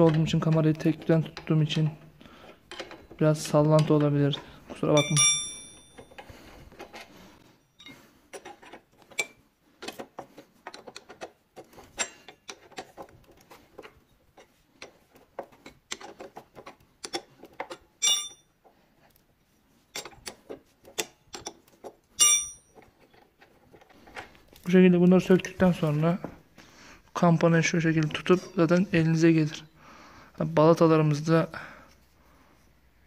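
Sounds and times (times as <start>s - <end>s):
wrench clinking on bolts: 4.9s - 7.0s, 17.0s - 18.5s, 22.2s - 23.2s
sharp ringing metal clinks: 5.0s - 6.2s, 18.0s - 18.5s, 22.2s - 22.7s.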